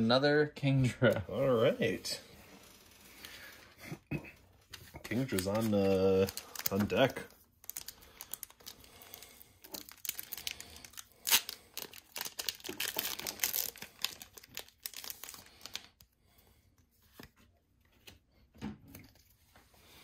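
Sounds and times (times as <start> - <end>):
foil wrapper crinkling and ripping: 5.1 - 16.1.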